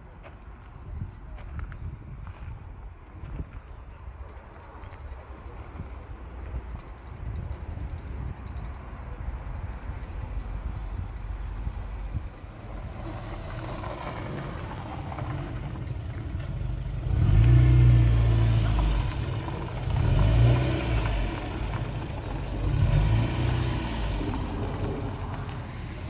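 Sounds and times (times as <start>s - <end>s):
car engine revving: 12.4s - 26.0s.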